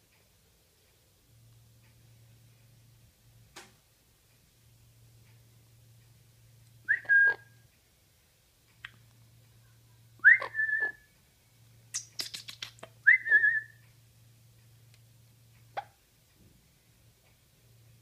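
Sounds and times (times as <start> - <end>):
parrot whistling: 6.9 - 7.6, 10.2 - 11.1, 12.0 - 13.8
parrot clicks: 12.0 - 12.9.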